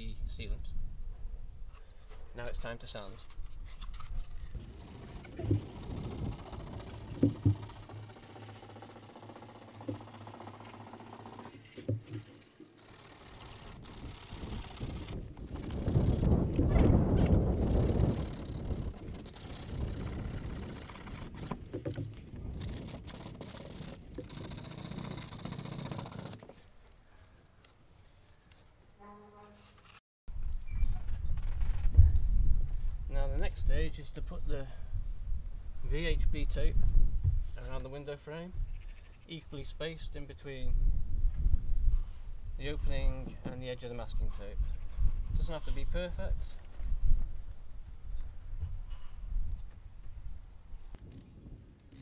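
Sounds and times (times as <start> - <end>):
sanding pad scratchy rasp: 22.6 - 26.5.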